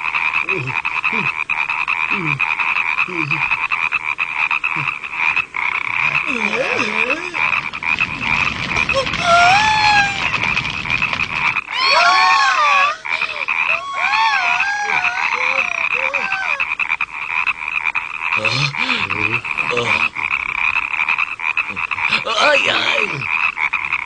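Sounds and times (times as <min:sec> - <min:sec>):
chorus of frogs croaking: 0:00.0 - 0:24.0
high rising and falling calls: 0:06.9 - 0:16.7.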